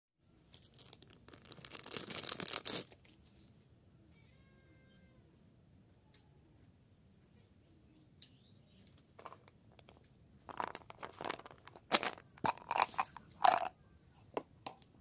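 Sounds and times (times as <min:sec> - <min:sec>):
plastic wrapper crinkling: 0:00.5 - 0:03.2, 0:10.5 - 0:13.7.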